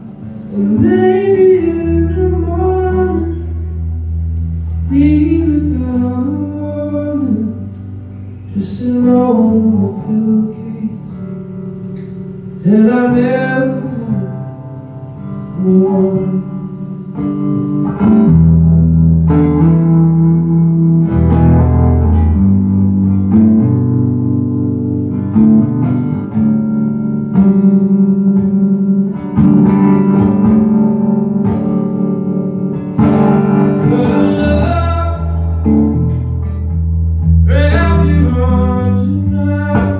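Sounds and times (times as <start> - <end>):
electric guitar chords: 0.0 - 39.9
man singing long notes: 33.7 - 36.0, 37.4 - 39.9.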